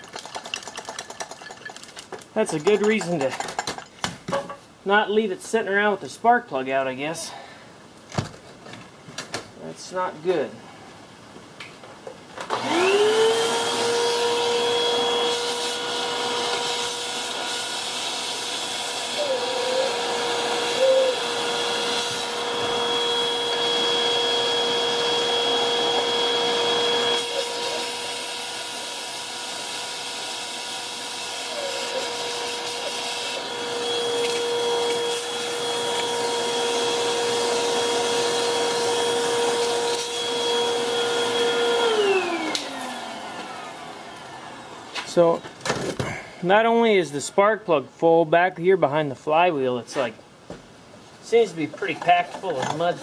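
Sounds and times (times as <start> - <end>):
vacuum cleaner whine: 12.4 - 45.1.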